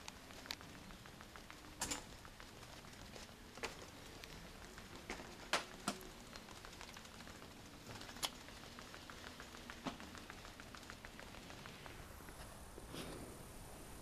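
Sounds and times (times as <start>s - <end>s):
faint clicks: 0.0s - 12.5s.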